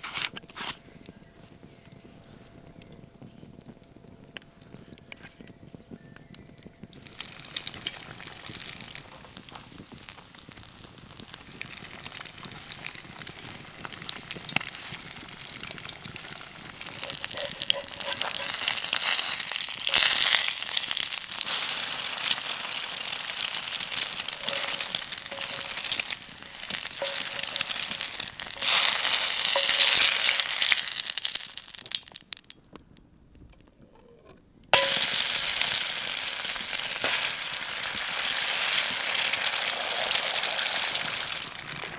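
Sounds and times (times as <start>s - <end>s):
fat sizzling in a skillet: 6.9s - 32.5s, 34.7s - 41.9s.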